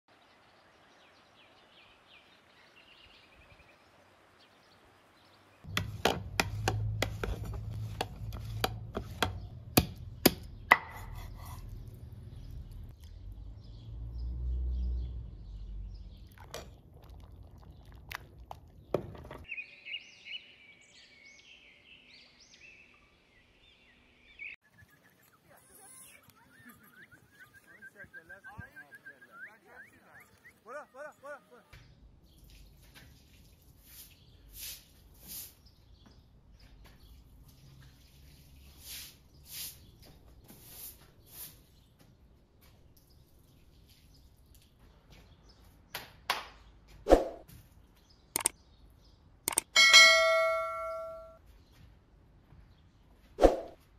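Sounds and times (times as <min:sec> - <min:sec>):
birds chirping: 0:00.1 - 0:47.0, 0:47.6 - 0:53.7
knife chopping bone on wooden board: 0:05.7 - 0:11.6.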